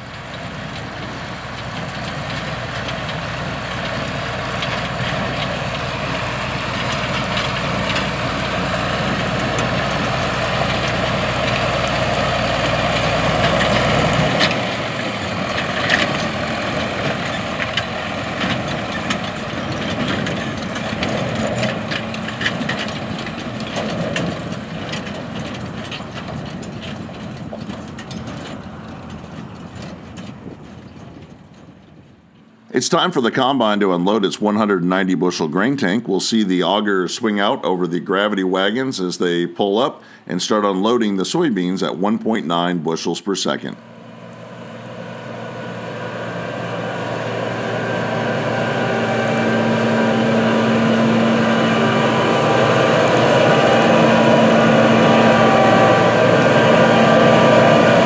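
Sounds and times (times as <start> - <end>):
wagon clanks and rattles: 0.0 - 32.6
diesel tractor engine running: 0.0 - 42.7, 43.5 - 58.0.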